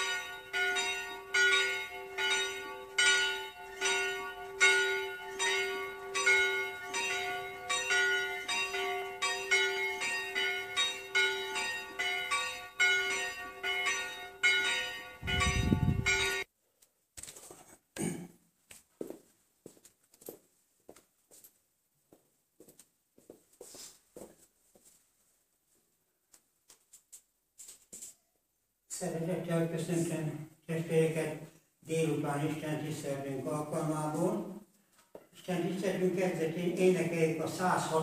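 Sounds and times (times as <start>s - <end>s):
church bell ringing: 0.0s - 16.5s, 35.5s - 38.0s.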